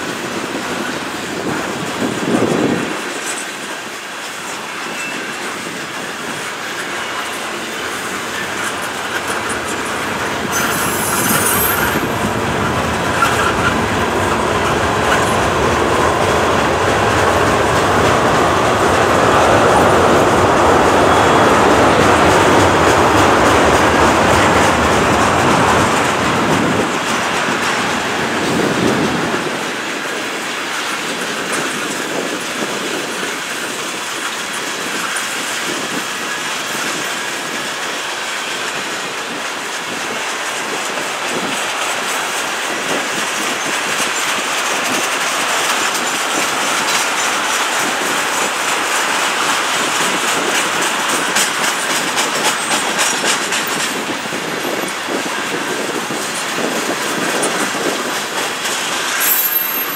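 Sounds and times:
train rumble and hiss: 0.0 - 59.9
train wheels clacking on rails: 0.0 - 59.9.

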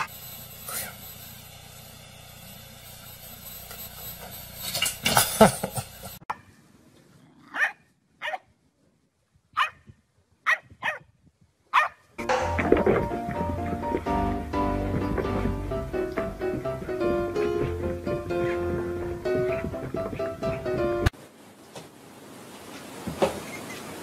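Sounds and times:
loud burst of noise: 0.0 - 6.2
bulldog barking: 7.5 - 8.4, 9.6 - 9.8, 10.5 - 11.0, 11.7 - 12.0.

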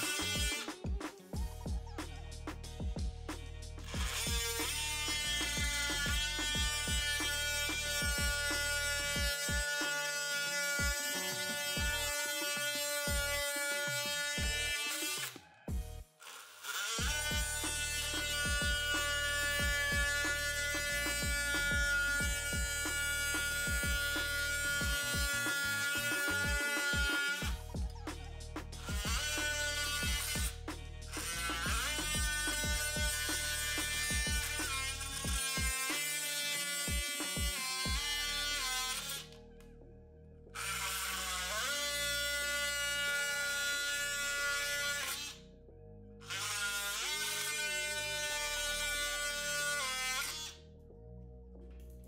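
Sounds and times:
oscillating multi-tool whining: 0.0 - 2.4, 3.8 - 39.5, 40.6 - 45.4, 46.2 - 50.6
music with steady beat: 0.0 - 10.0, 10.7 - 16.2, 17.0 - 38.4.

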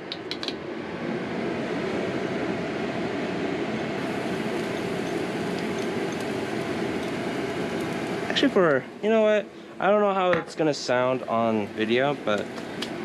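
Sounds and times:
kitchen exhaust fan whirring: 0.0 - 13.0.

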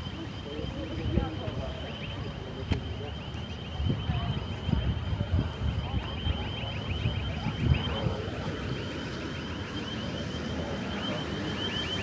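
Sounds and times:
electronic alarm chirping: 0.0 - 12.0
wind rumble on microphone: 3.7 - 8.7.

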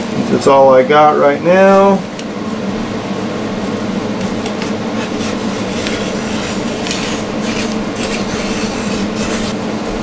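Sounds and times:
steady background hum: 0.0 - 10.0
rotary cutter slicing cloth: 4.4 - 9.7.

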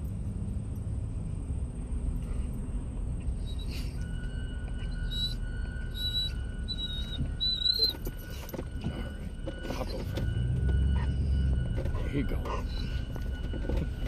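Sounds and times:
vehicle idling hum: 0.0 - 14.0
dog whining: 3.3 - 4.1, 4.9 - 8.4.

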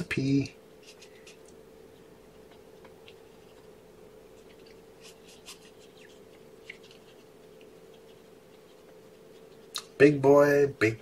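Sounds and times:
steady low hum: 0.0 - 11.0
scratches: 4.3 - 10.0
hands rubbing kitten fur: 4.4 - 9.7.

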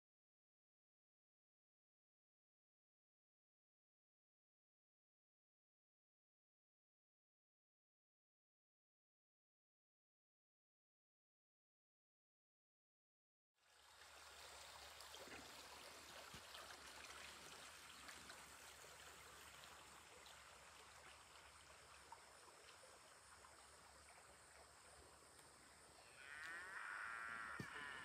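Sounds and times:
outdoor background hiss: 13.6 - 28.0.

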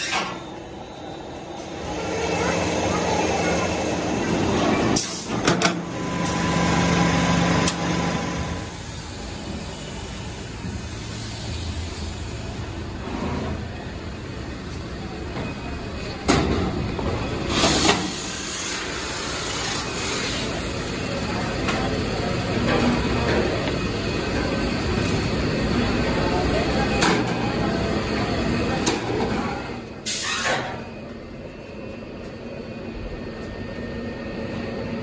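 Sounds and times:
factory machinery running: 0.0 - 35.0.

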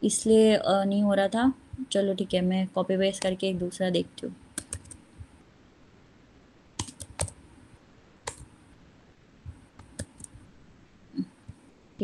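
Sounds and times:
keyboard keystroke clicks: 4.6 - 5.0, 6.8 - 7.4, 8.2 - 8.5, 9.5 - 10.4.

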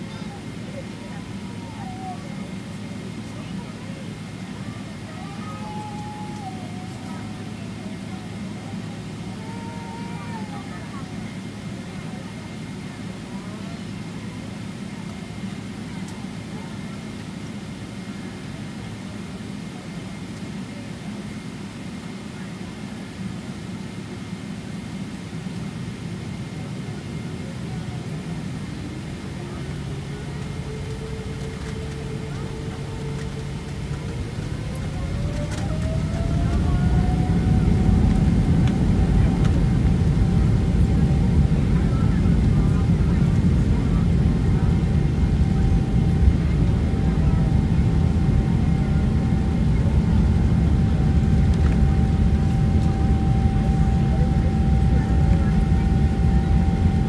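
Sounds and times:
jet engines low rumble: 0.0 - 57.0
thin steady whine: 25.8 - 57.0.

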